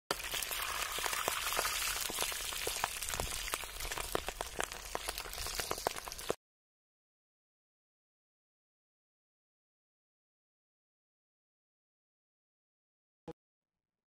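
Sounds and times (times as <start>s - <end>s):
deep-frying sizzle with pops: 0.1s - 6.4s.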